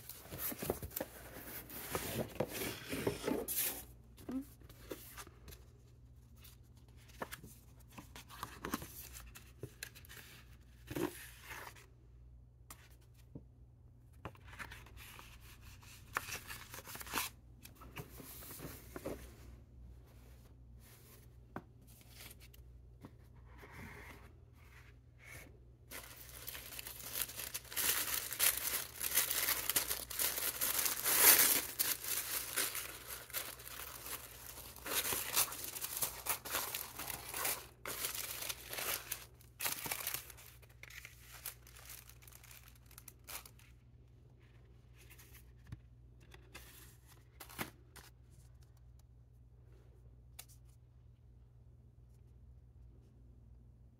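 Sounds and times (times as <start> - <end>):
tissue paper crinkling and tearing: 25.9 - 43.7.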